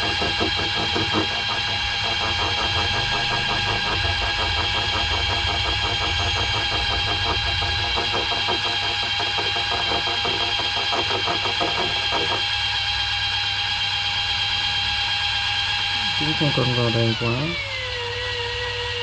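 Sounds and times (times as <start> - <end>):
rapid reel ticking: 0.0 - 12.5
electric reel motor whine: 0.0 - 19.0.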